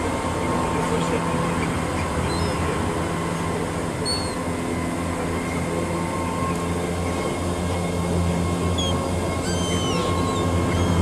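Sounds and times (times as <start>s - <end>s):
low rumble of city traffic: 0.0s - 11.0s
faint high bird chirps: 4.0s - 4.4s, 8.8s - 11.0s.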